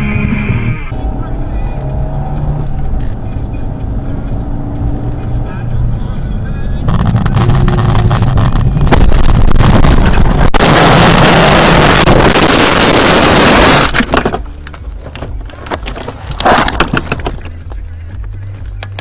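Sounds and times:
road and engine rumble: 0:00.0 - 0:19.0
knocks and rattles: 0:13.9 - 0:19.0.

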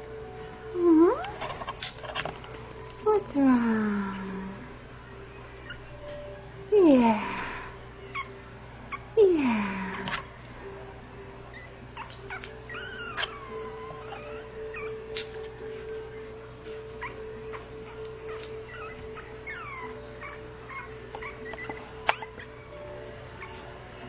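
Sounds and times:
puppy whimpering and whining: 0:05.2 - 0:06.4, 0:08.0 - 0:09.2, 0:11.5 - 0:24.0.

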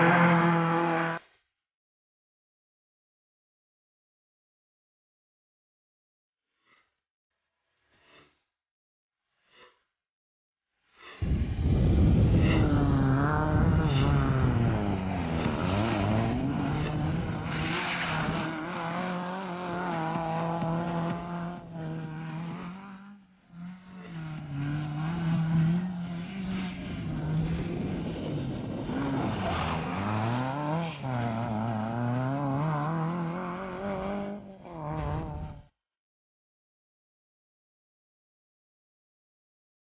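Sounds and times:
rally car engines revving: 0:00.0 - 0:01.2, 0:11.2 - 0:35.7.

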